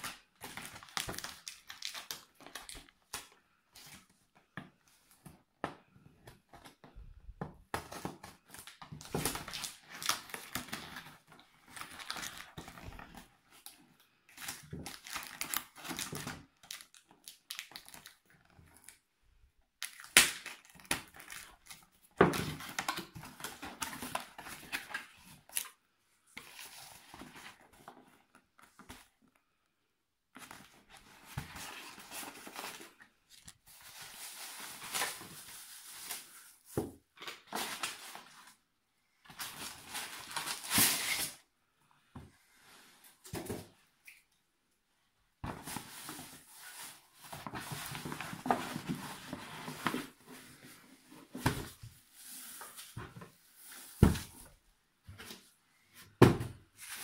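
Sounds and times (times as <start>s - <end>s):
cardboard packaging rustling: 30.4s - 38.6s, 45.5s - 54.6s.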